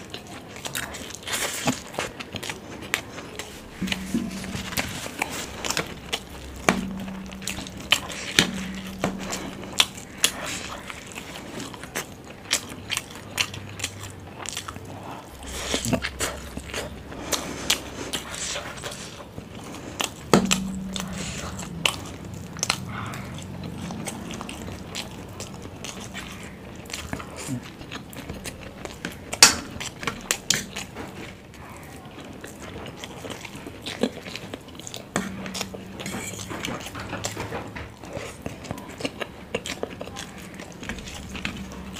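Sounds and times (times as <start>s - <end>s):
chewing and wet mouth noises: 0.0s - 41.9s.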